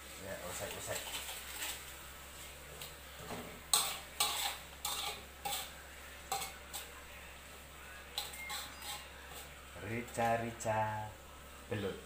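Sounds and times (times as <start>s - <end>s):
metal spatula scraping a wok: 0.7s - 1.9s, 3.6s - 7.0s, 8.1s - 10.4s.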